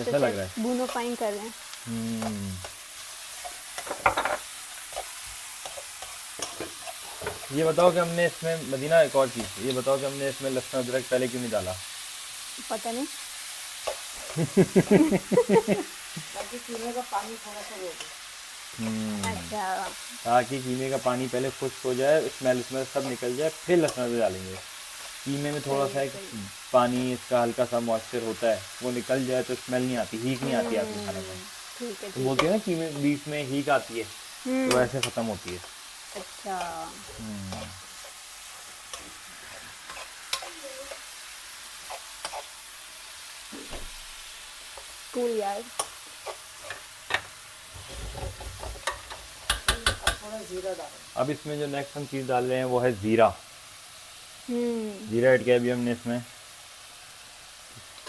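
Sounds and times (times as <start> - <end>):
mince and onions sizzling: 0.0 - 58.0
person speaking: 1.9 - 2.7, 18.8 - 19.6, 30.2 - 32.3, 34.5 - 35.4, 36.5 - 37.8
metal spoon scraping pan: 2.6 - 7.6, 37.5 - 41.1, 41.8 - 42.6.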